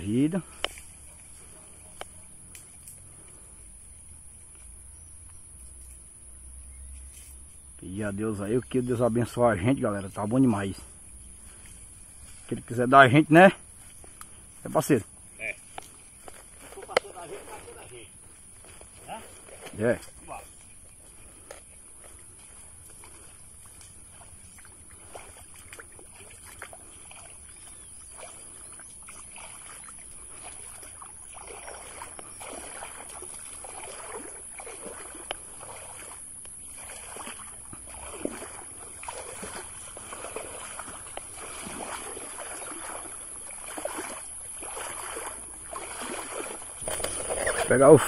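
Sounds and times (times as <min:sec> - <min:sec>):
wading splashes through water: 0:00.0 - 0:04.9, 0:08.3 - 0:48.0
high-pitched whine: 0:46.8 - 0:48.0.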